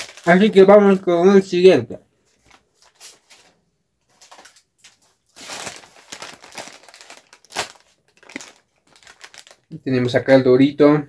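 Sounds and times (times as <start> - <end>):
plastic chip bag crinkling: 0.0 - 1.1, 2.4 - 9.8.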